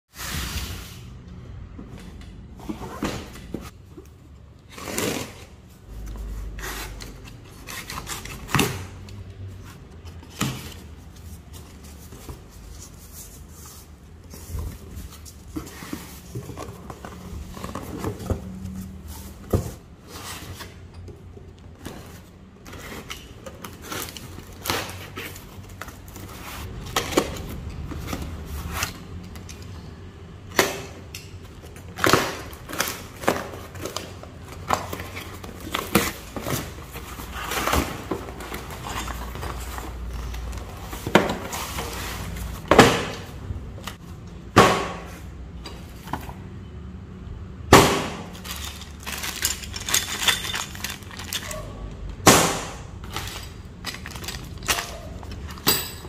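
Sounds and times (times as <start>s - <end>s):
plastic bags rustling and crinkling: 32.4s - 42.7s, 48.3s - 51.9s, 53.0s - 55.6s.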